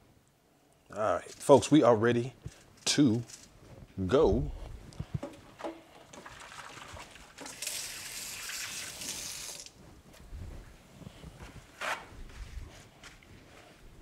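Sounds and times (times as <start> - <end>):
kitchen tap running: 6.1 - 9.7.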